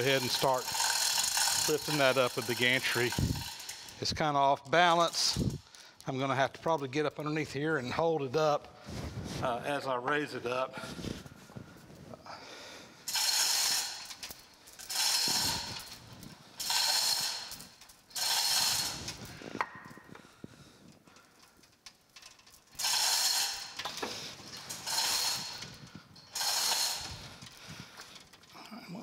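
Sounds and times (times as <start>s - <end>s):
chain hoist lifting: 0.0s - 6.2s, 13.1s - 20.2s, 20.9s - 29.0s.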